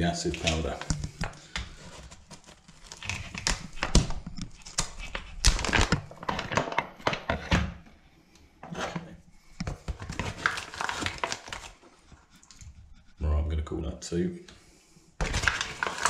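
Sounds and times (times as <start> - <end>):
foil pouch crinkling: 0.2 - 6.8, 10.0 - 11.8, 15.2 - 16.0.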